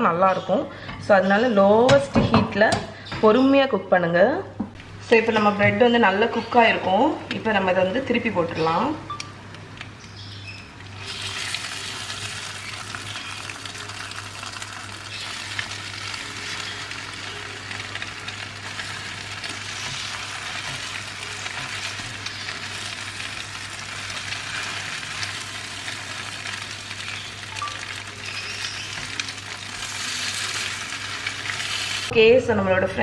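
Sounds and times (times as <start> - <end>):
french toast sizzling in pan: 10.9 - 32.1
spatula scraping and clicking in pan: 11.0 - 32.0.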